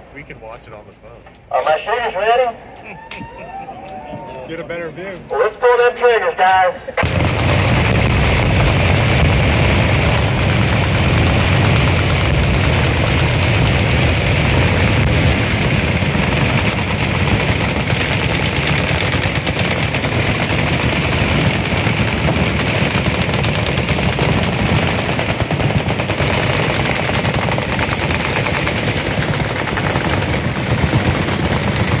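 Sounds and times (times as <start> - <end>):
machine guns firing: 7.0 - 32.0.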